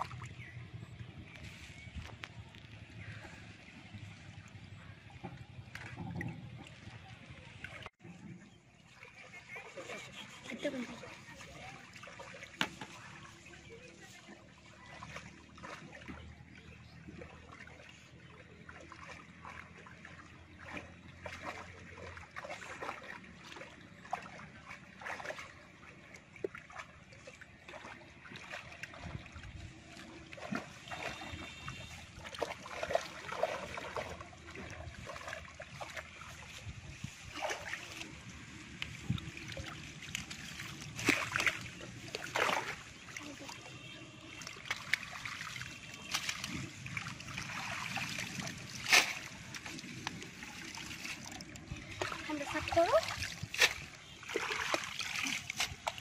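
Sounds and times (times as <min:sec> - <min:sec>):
shallow water sloshing and splashing: 0:00.0 - 0:56.0.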